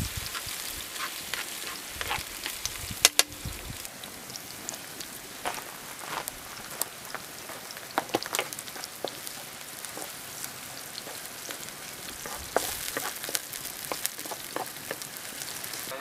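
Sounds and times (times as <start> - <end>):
oil popping: 0.0 - 15.9
onions sizzling in oil: 0.0 - 16.0
wooden spatula stirring: 8.0 - 15.9.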